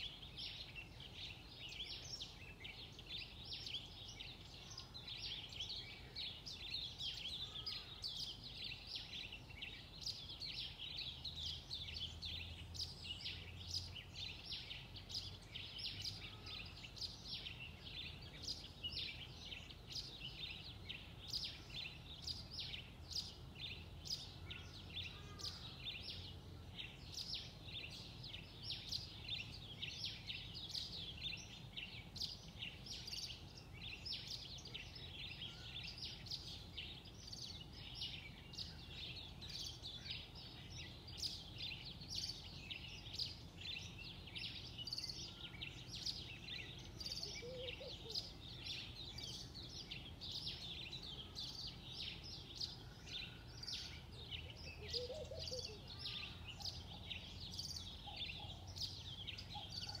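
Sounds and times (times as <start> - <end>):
small birds chirping: 0.0 - 60.0
low bird calls: 44.5 - 60.0.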